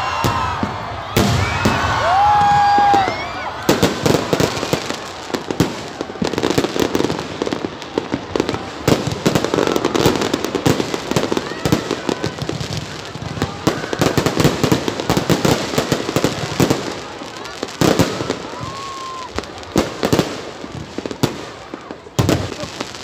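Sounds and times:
fireworks bangs and crackles: 0:00.0 - 0:23.0.

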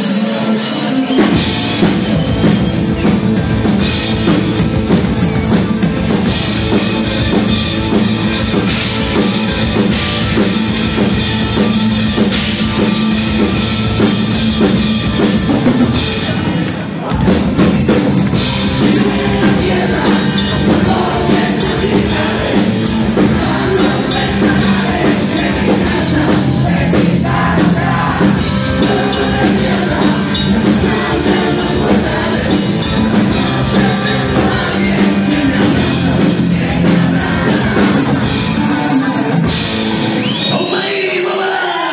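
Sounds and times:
electric guitars: 0:00.0 - 0:40.6
drum kit: 0:00.0 - 0:40.7
person singing: 0:18.4 - 0:38.6.

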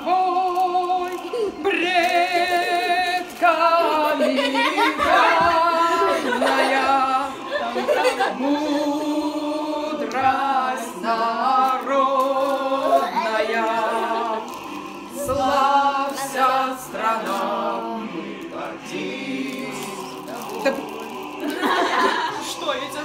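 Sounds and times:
several voices singing together: 0:00.0 - 0:23.0.

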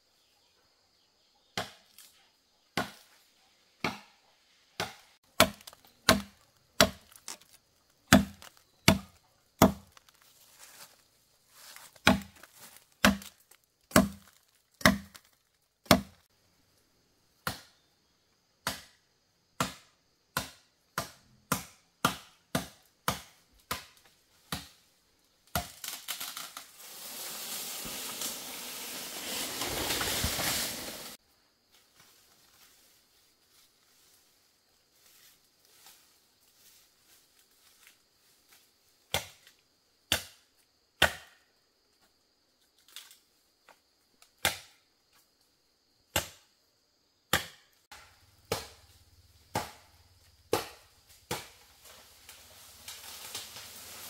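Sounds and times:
chopping into wood: 0:01.6 - 0:02.0, 0:02.8 - 0:03.1, 0:03.8 - 0:04.2, 0:04.8 - 0:10.2, 0:11.9 - 0:16.2, 0:17.4 - 0:17.8, 0:18.6 - 0:19.0, 0:19.6 - 0:24.8, 0:39.1 - 0:39.5, 0:40.1 - 0:40.4, 0:41.0 - 0:41.5, 0:44.4 - 0:44.8, 0:46.1 - 0:46.4, 0:47.3 - 0:48.9, 0:49.5 - 0:49.9, 0:50.5 - 0:51.6
rushing rustling noise: 0:26.7 - 0:31.2.

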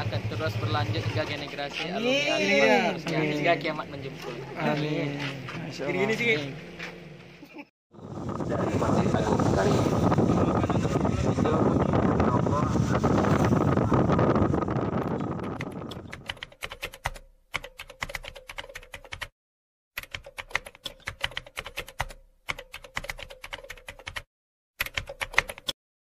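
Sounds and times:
wind noise on microphone: 0:08.0 - 0:16.4
keyboard typing clicks: 0:15.5 - 0:19.3, 0:20.0 - 0:25.8.

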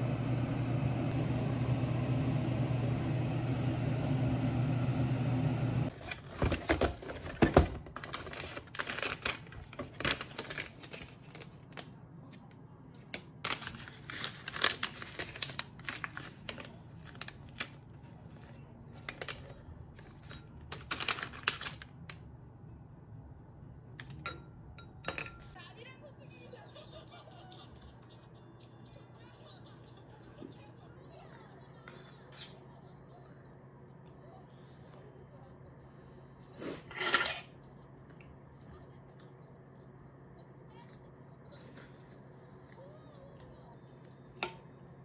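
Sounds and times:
low fan hum: 0:00.0 - 0:45.0
tea sachet crinkling and tearing: 0:13.4 - 0:18.0, 0:20.7 - 0:22.1.

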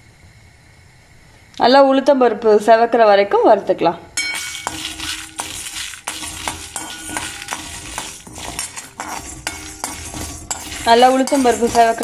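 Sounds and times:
spoon clinking against pan: 0:04.2 - 0:12.0
spoon scraping metal pan: 0:04.2 - 0:12.0.

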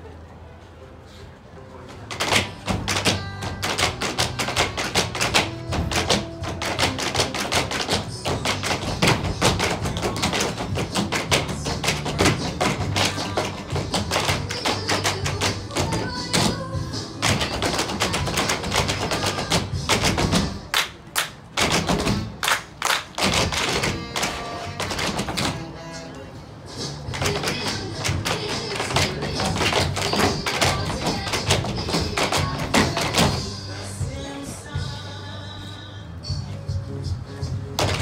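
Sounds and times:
tap shoes on a stage floor: 0:02.0 - 0:25.7, 0:27.0 - 0:33.5, 0:37.8 - 0:38.0.

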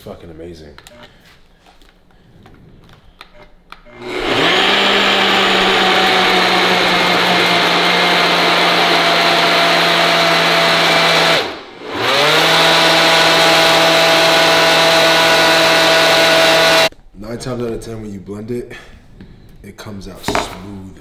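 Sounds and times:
blender motor running: 0:03.9 - 0:16.9.

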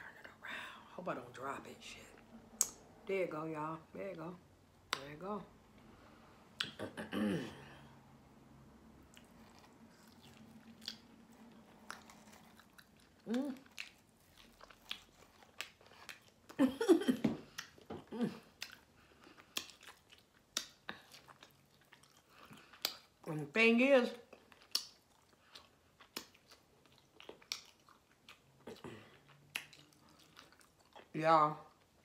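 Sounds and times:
wet mouth clicks: 0:06.6 - 0:06.8
person chewing meat: 0:09.0 - 0:16.6, 0:17.5 - 0:23.2, 0:24.3 - 0:31.1.

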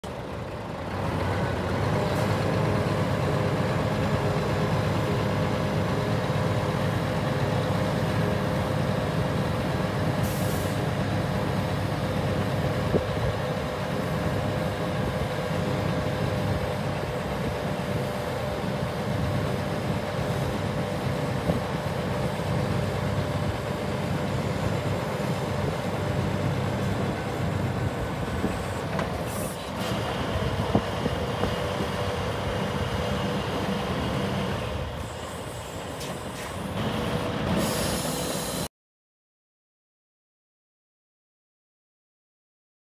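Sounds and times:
truck diesel engine running: 0:00.0 - 0:37.6
hydraulic pump whine: 0:35.0 - 0:38.7.

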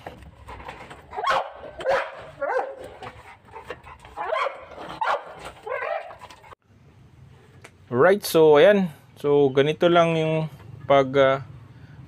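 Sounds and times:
dog barking: 0:01.1 - 0:03.0, 0:04.1 - 0:06.2.

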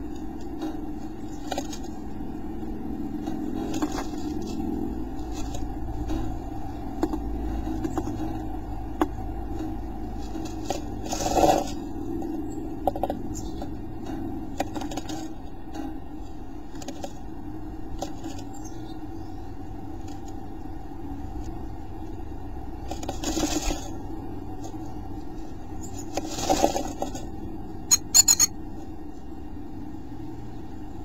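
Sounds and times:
steady low hum: 0:00.0 - 0:31.0
bird scratching in nest box: 0:10.2 - 0:11.9.

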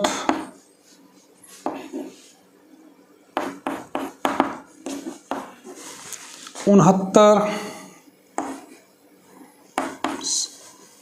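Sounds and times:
chalk tapping on a blackboard: 0:03.4 - 0:05.5, 0:08.4 - 0:08.7, 0:09.8 - 0:10.4.

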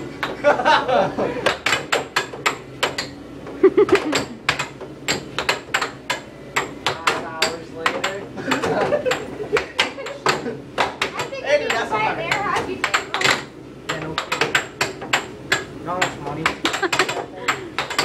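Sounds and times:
air hockey puck clacking: 0:01.4 - 0:18.0.

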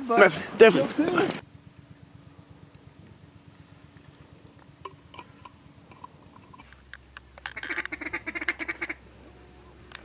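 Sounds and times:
ducks quacking: 0:07.4 - 0:09.0.

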